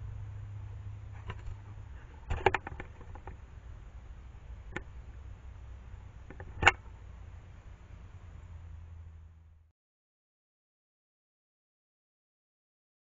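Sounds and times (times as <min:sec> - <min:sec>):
steady low hum: 0:00.0 - 0:09.7
animals knocking against camera: 0:02.2 - 0:03.4.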